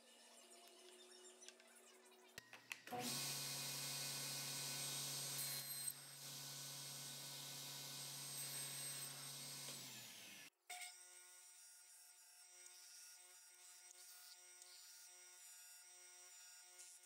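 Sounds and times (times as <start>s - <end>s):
table saw running: 2.9s - 10.5s.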